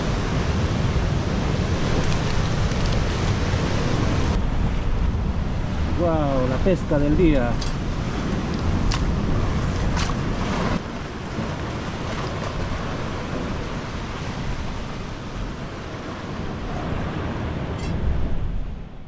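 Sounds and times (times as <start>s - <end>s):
sea surf rushing: 0.0s - 19.0s
wind rumbling on microphone: 0.0s - 19.0s.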